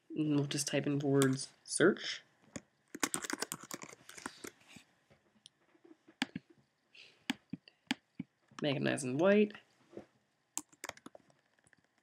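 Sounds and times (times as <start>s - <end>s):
typing on a keyboard: 2.9s - 4.5s, 10.6s - 12.0s.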